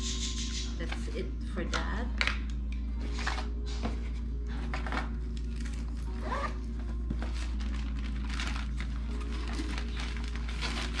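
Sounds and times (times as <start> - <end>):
packaging rustling and scraping: 3.0 - 11.0.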